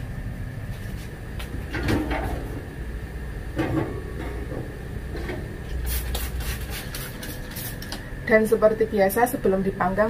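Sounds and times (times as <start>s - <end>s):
toaster oven door and rack clatter: 1.6s - 2.7s, 3.5s - 5.5s
spray bottle squirts: 5.9s - 7.9s.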